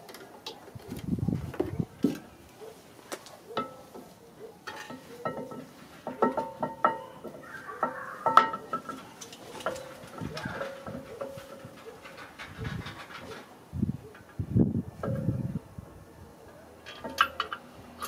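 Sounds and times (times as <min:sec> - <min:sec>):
metal brake parts clinking: 0:04.6 - 0:07.4, 0:08.3 - 0:12.5, 0:16.8 - 0:18.0.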